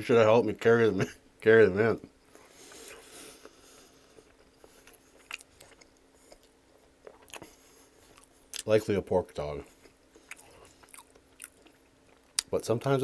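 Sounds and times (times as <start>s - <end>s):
close chewing: 2.6s - 8.8s, 9.7s - 12.5s.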